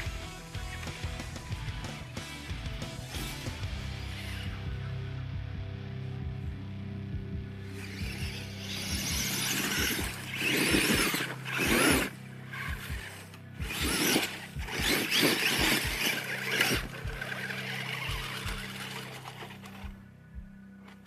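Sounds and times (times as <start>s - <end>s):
background music with beat: 0.0s - 21.0s
electric motor and tyres squealing: 3.0s - 4.7s, 7.7s - 19.9s.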